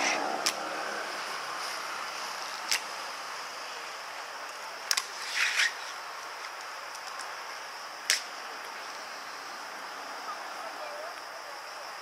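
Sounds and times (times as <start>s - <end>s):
sole scraping on stone: 5.0s - 6.0s.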